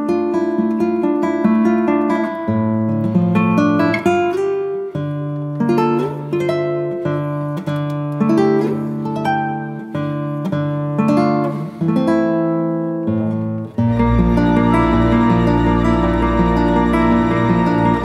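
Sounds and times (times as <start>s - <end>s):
acoustic guitar plucked notes: 0.0s - 18.0s.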